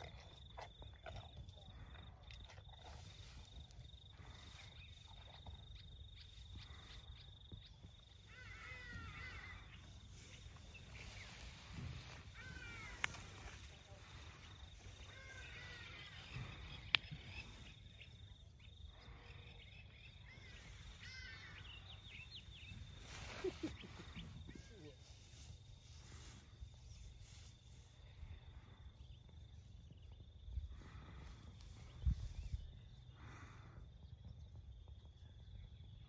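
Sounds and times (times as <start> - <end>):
insect trilling: 3.5 - 19.2, 19.8 - 26.3
birds chirping: 4.0 - 25.0.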